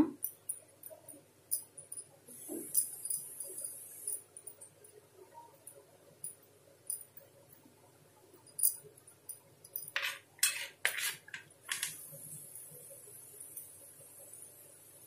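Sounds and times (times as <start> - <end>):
metal spoon scraping a plate: 9.9 - 11.9.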